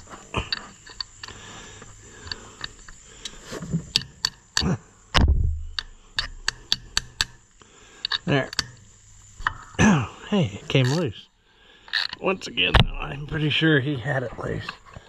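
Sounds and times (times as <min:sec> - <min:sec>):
ratchet wrench clicking: 0:00.0 - 0:04.8, 0:05.6 - 0:09.8, 0:10.7 - 0:11.0, 0:11.9 - 0:12.2
heavy thump: 0:05.2 - 0:05.8, 0:12.8 - 0:13.2.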